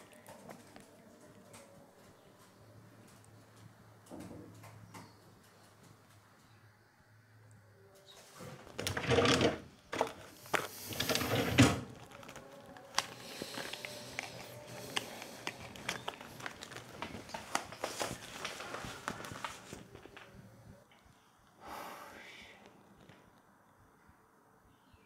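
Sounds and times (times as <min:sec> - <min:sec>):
rustling: 0:08.1 - 0:20.7.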